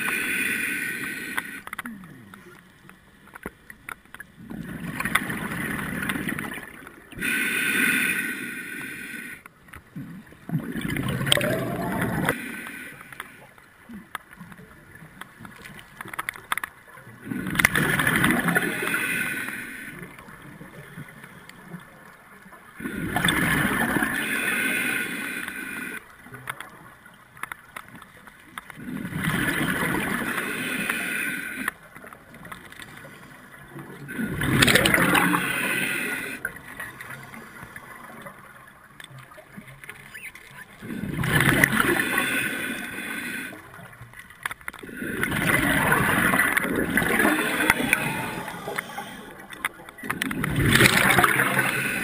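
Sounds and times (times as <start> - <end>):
diver inhaling through regulator: 0.0 - 1.7, 7.1 - 9.4, 18.4 - 20.0, 30.2 - 31.8, 34.6 - 36.6, 40.9 - 43.7, 45.1 - 49.6, 50.9 - 52.0
exhaled bubbles underwater: 4.3 - 7.3, 9.9 - 12.4, 16.9 - 19.1, 20.0 - 24.6, 28.8 - 30.9, 32.2 - 44.0, 44.8 - 52.0.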